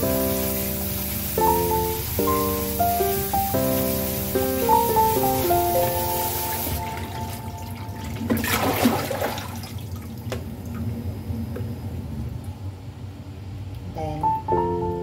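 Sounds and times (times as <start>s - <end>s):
water draining from colander: 6.6s - 10.8s.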